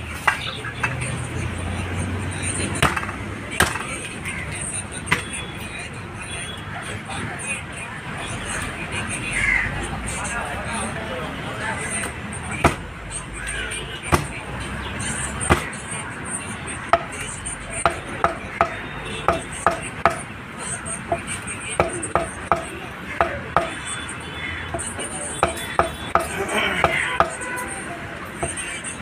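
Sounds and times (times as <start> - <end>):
cleaver chopping on wooden block: 2.8 - 3.9, 5.1 - 5.3, 12.6 - 12.8, 14.1 - 14.3, 15.5 - 15.8, 17.8 - 20.2, 21.8 - 23.8, 25.4 - 27.4.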